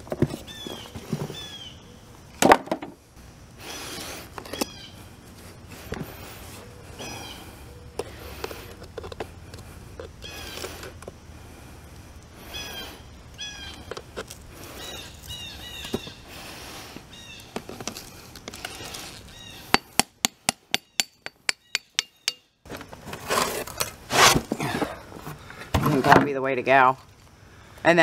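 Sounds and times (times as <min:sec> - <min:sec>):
birds chirping: 0:00.4 - 0:02.4, 0:03.0 - 0:22.6.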